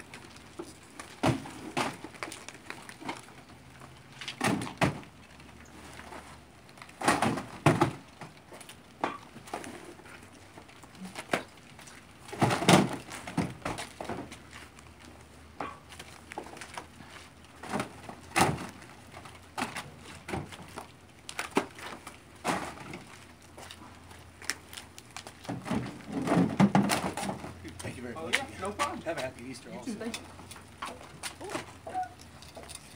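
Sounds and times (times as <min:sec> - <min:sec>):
cardboard cases thudding: 0:01.0 - 0:02.4, 0:04.3 - 0:05.1, 0:07.0 - 0:08.1, 0:12.3 - 0:14.4, 0:17.6 - 0:18.9, 0:25.5 - 0:27.6.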